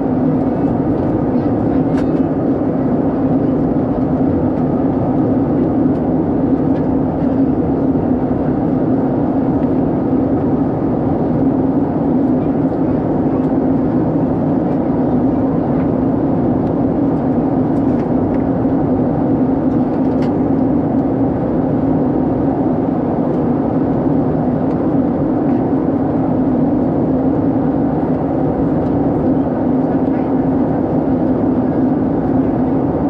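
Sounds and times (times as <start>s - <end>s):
jet engine drone: 0.0s - 33.0s.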